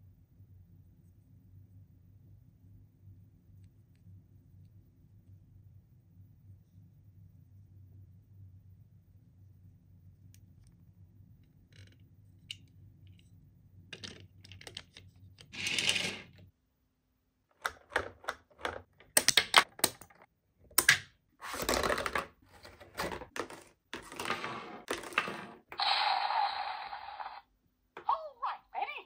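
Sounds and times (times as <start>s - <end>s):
plastic toy pieces clicking: 17.6s - 20.2s.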